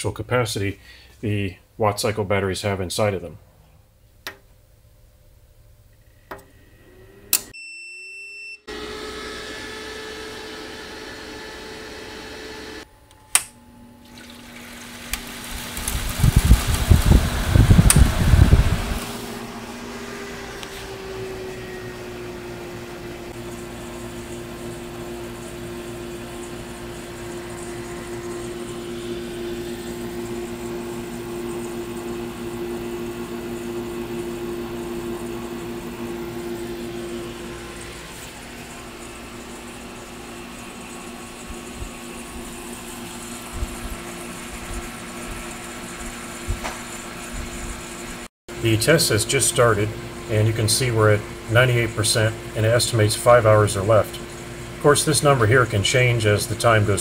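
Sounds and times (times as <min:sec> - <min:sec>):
electrical hum: 0:03.0 - 0:07.6, 0:08.7 - 0:57.0
air conditioner running: 0:08.7 - 0:57.0
clicks: 0:13.1 - 0:13.6.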